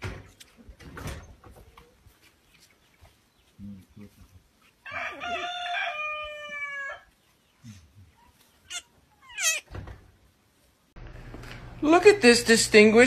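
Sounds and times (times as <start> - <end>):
rooster crowing: 4.9 - 7.1
short high squeaks: 8.7 - 9.7.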